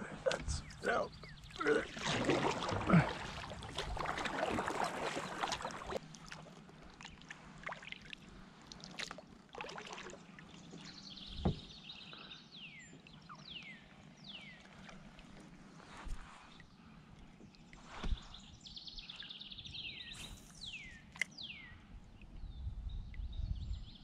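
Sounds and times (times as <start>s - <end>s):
kayak paddle splashing water: 1.4s - 11.8s
water dripping off paddle: 1.5s - 10.5s
dull thump: 11.3s - 11.7s, 18.0s - 18.3s.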